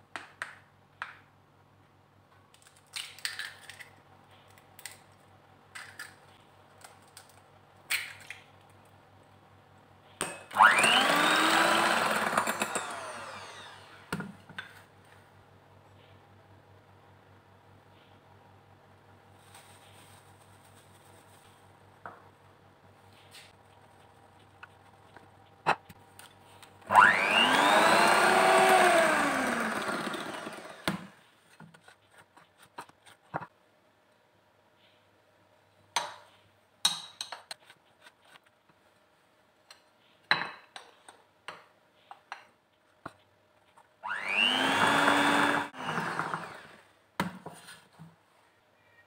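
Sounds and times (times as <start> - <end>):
electric hand mixer whining: 10.5 - 14.1, 26.9 - 31.2, 44.0 - 46.8.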